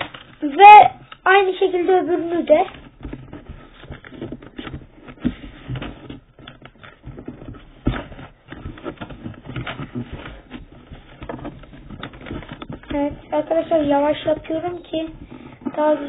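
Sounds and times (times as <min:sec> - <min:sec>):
paper rustling and crinkling: 0:00.0 - 0:16.0.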